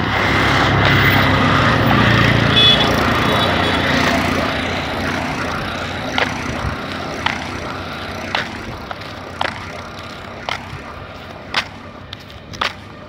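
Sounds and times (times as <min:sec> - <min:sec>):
vehicle rolling on brick road: 0:00.0 - 0:13.0.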